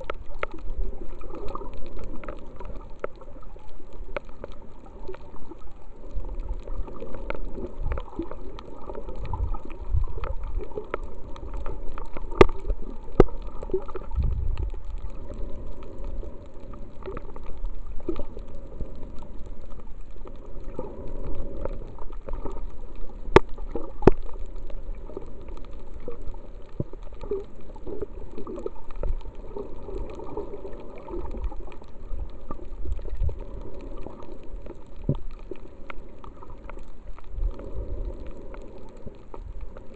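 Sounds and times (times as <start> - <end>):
muffled underwater gurgle: 0.0 - 39.9
sharp underwater clicks: 0.0 - 39.9.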